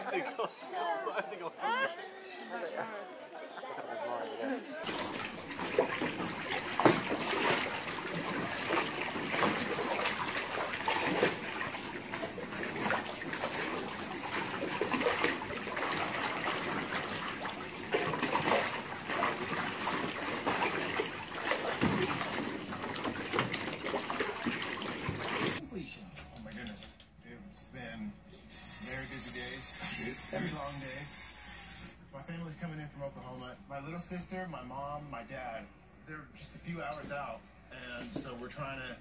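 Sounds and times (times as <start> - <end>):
water splashing in a pool: 4.8 - 25.7.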